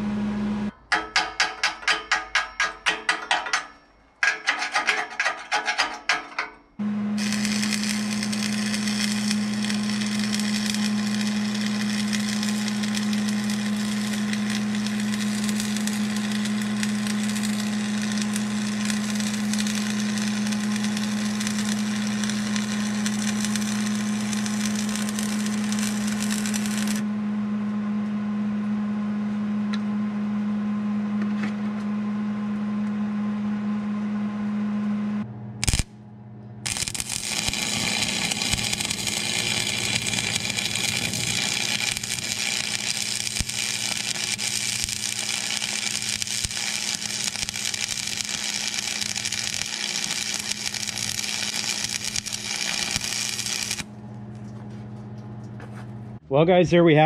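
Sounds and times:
low hum: 3.5 - 56.3
welding arc crackling: 7.1 - 27.0, 35.6 - 36.0, 36.6 - 53.9.

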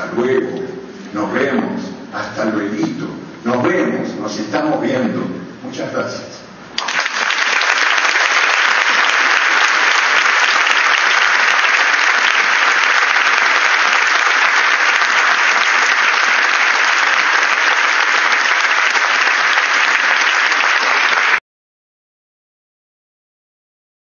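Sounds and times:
audience applauding: 6.8 - 21.4.

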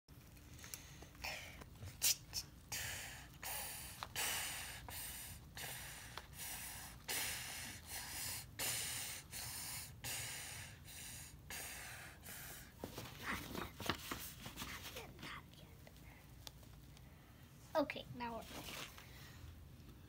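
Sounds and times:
child puffing air: 1.2 - 12.8.

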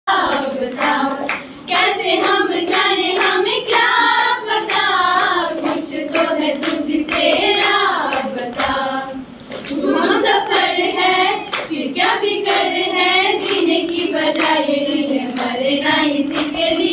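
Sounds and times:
women singing together: 0.1 - 16.9
hand claps: 0.2 - 8.8, 9.5 - 10.7, 11.4 - 11.8, 13.3 - 16.9.

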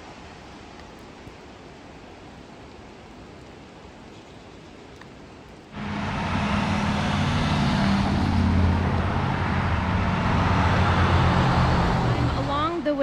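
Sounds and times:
tyres hissing on wet pavement: 5.7 - 13.0
car engine hum: 5.8 - 13.0.

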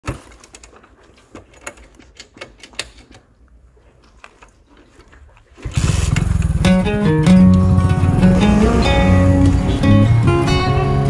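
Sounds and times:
clicks and rattles: 0.0 - 7.7
motorcycle low rumble: 5.6 - 11.0.

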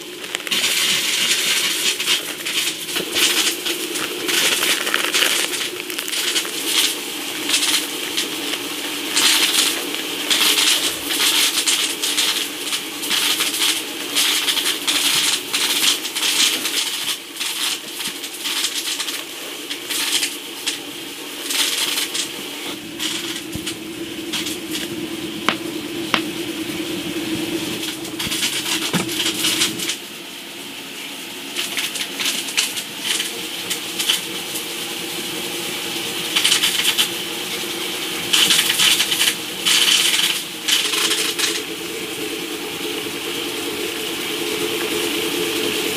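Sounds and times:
plastic packets crinkling: 0.0 - 10.9
steady low hum: 22.4 - 30.2.

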